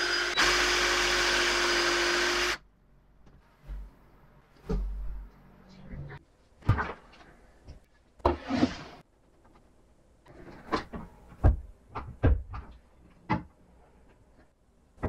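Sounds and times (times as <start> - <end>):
wooden knocks and clunks: 10.6 - 13.6.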